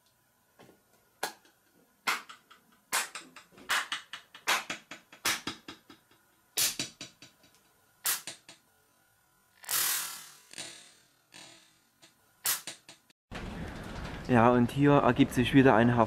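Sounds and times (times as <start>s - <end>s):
hand claps with echo: 2.1s - 5.9s.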